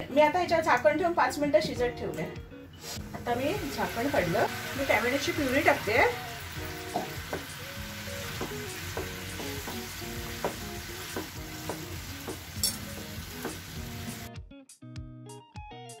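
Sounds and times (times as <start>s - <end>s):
curry sizzling in frying pan: 3.0s - 14.3s.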